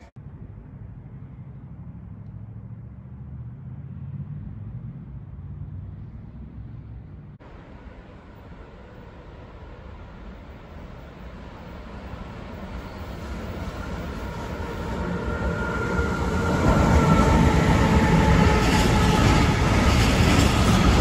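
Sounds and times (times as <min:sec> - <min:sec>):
low vehicle rumble: 0:00.0 - 0:21.0
freight train approaching: 0:06.7 - 0:21.0.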